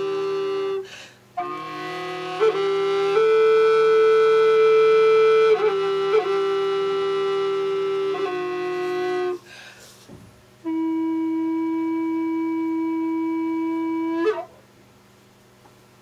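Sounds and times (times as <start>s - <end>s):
recorder held notes: 10.6s - 14.8s.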